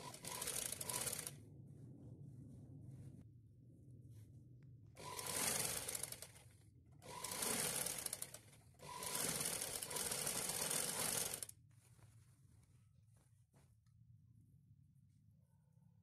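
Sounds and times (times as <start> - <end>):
sewing machine stitching: 0.0 - 1.3, 5.0 - 6.4, 7.0 - 11.5.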